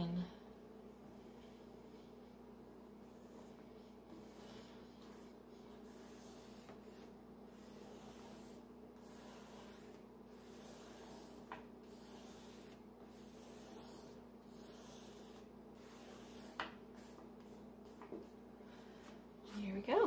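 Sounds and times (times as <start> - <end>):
crayon scratching on paper: 3.0 - 18.3.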